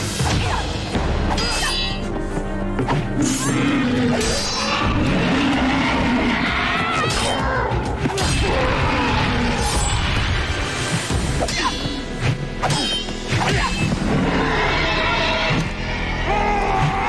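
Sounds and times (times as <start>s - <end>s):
action music: 0.0s - 17.0s.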